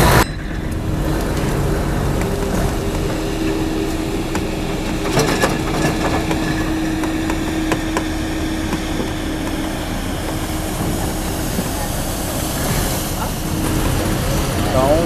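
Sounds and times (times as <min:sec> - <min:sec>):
excavator bucket clanks: 0:00.0 - 0:11.7
diesel engine running: 0:00.0 - 0:15.0.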